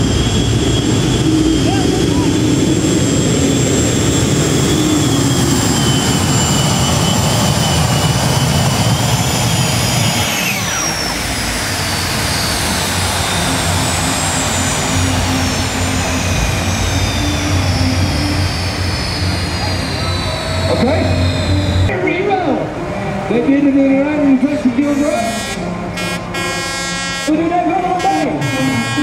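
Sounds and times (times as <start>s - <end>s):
tractor engine with high whine: 0.0s - 29.0s.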